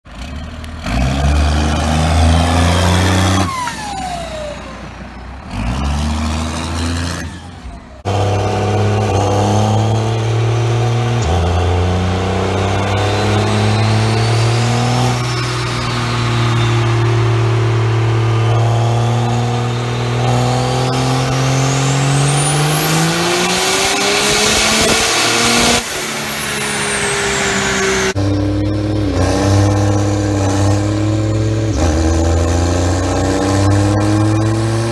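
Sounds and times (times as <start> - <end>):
diesel pickup engine revving: 0.0 - 34.9
high whine: 7.3 - 34.6.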